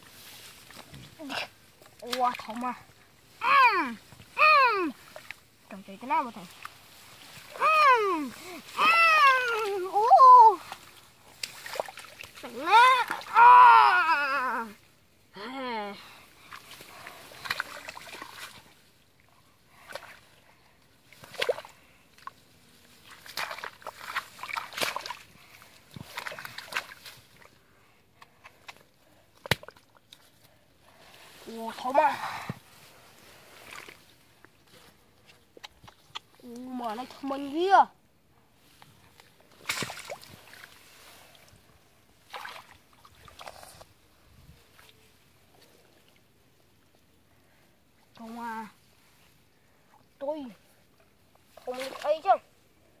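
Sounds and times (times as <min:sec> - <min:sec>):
long grass rustling: 0:00.0 - 0:13.3, 0:16.0 - 0:37.5, 0:38.4 - 0:53.0
muddy water sloshing: 0:00.0 - 0:14.9, 0:16.0 - 0:37.7, 0:38.6 - 0:47.1, 0:47.9 - 0:52.9
water splash: 0:10.7 - 0:13.3, 0:23.0 - 0:25.2, 0:39.5 - 0:40.8, 0:42.2 - 0:43.7.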